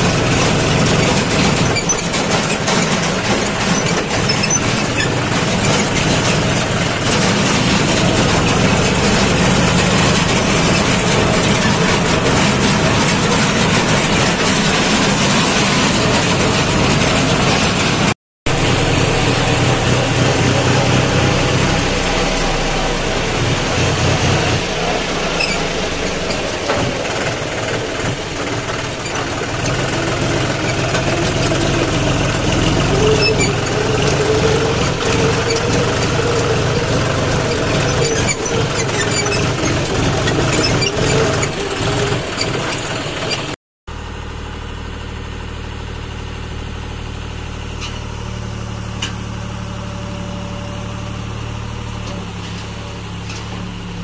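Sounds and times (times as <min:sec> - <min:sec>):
loose rattles: 0:00.0 - 0:18.1
tractor diesel engine running: 0:00.0 - 0:54.0
trailer dumping mud: 0:00.0 - 0:54.0.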